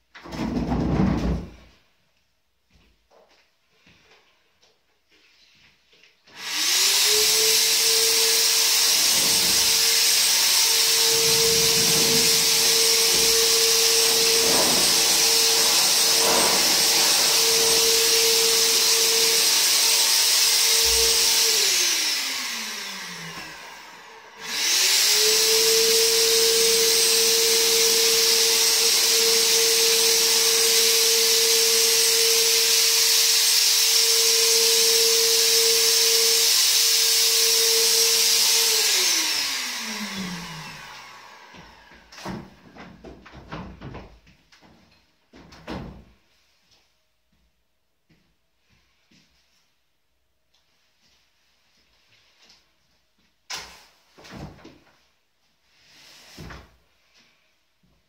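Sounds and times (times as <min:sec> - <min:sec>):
fogger blower motor whining: 0:06.4 - 0:42.0.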